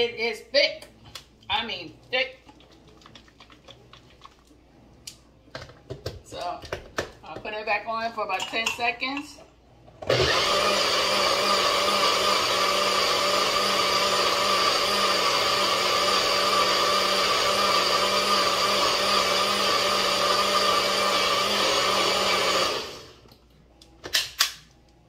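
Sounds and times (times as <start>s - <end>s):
blender running: 10.0s - 23.2s.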